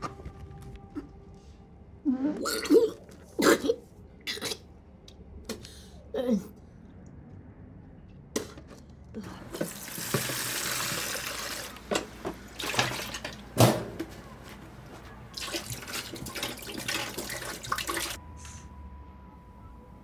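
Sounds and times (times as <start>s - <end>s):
dishes clattering in sink: 11.9s - 14.2s.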